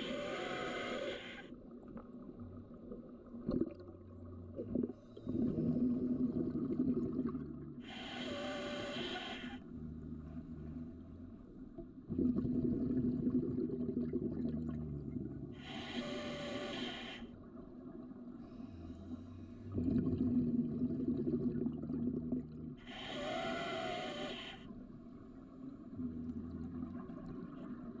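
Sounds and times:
scuba regulator breathing underwater: 0.0 - 1.5, 7.8 - 10.8, 15.6 - 17.4, 22.8 - 24.8.

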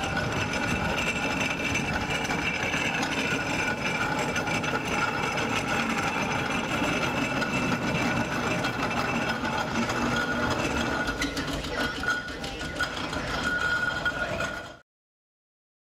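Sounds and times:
machine rumbling: 0.0 - 14.8.

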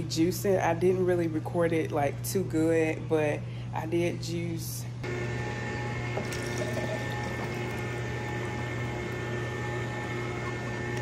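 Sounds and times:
electric juicer motor hum: 5.0 - 11.0.

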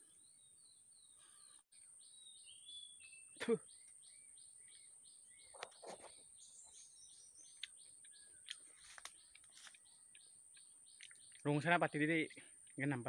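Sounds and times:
soft mouth or handling sounds: 8.4 - 9.9.

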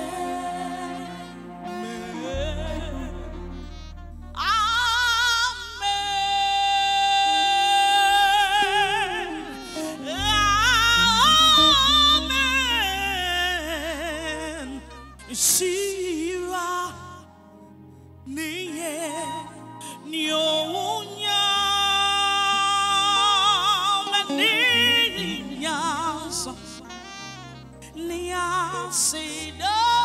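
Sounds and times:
band playing: 0.0 - 5.7
bass notes: 0.0 - 16.6
woman singing gospel: 4.4 - 17.2, 18.3 - 27.0, 27.9 - 30.0.

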